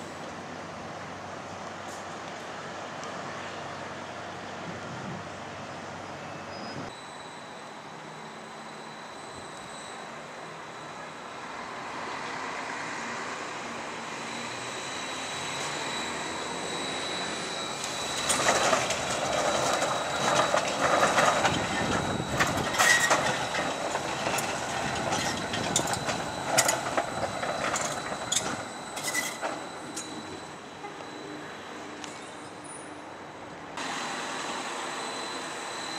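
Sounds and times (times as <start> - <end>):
tram passing on track: 0.0 - 35.9
wheel squeals: 5.6 - 13.0, 14.1 - 35.9
wheels clattering over rail joints: 17.3 - 31.2.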